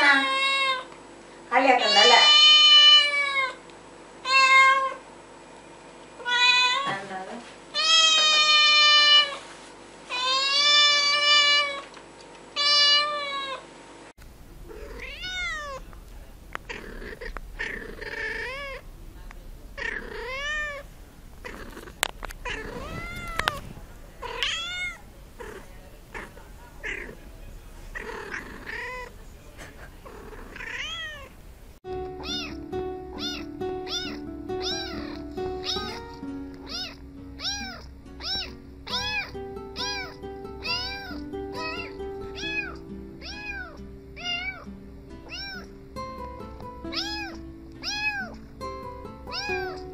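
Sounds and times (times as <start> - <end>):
kitten meowing: 1.8 - 3.6, 4.3 - 5.0, 6.2 - 6.9, 7.8 - 9.4, 12.6 - 13.6, 14.7 - 15.9, 16.6 - 18.8, 19.8 - 27.2, 27.9 - 29.1, 30.1 - 31.3, 32.2 - 45.7, 46.9 - 48.4, 49.3 - 49.9.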